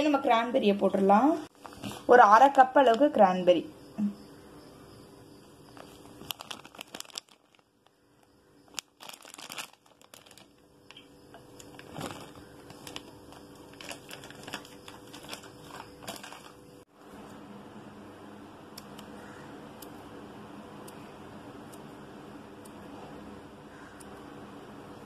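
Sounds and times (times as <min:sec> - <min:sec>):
faint steady hum: 0:00.0 - 0:25.0
crumbly dough crinkling and rustling: 0:00.9 - 0:02.6, 0:05.6 - 0:16.9.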